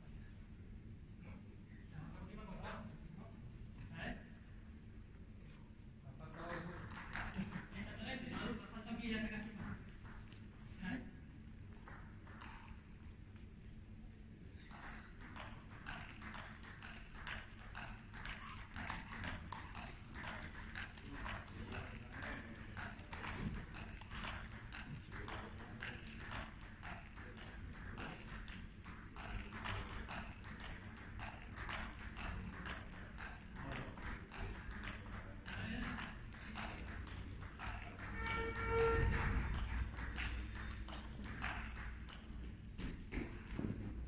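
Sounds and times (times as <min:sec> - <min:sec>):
table tennis balls clicking: 0:06.2 - 0:44.0.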